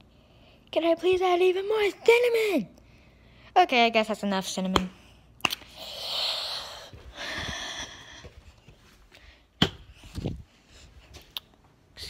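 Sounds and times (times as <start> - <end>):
noisy breaths close to microphone: 2.8 - 3.6, 5.0 - 11.3.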